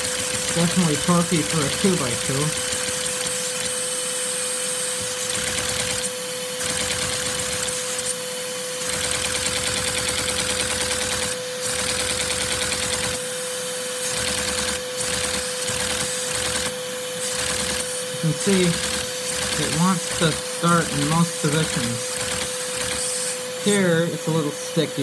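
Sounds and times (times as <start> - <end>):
toy vacuum engine clattering: 0.0 - 8.1, 8.8 - 13.2, 14.0 - 24.6
vacuum cleaner whine: 0.0 - 25.0.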